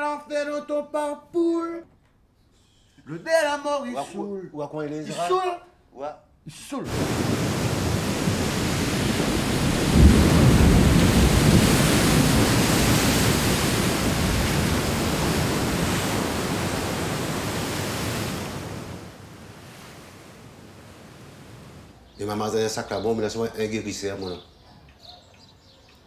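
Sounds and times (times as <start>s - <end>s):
heavy surf waves breaking: 6.8s - 22.0s.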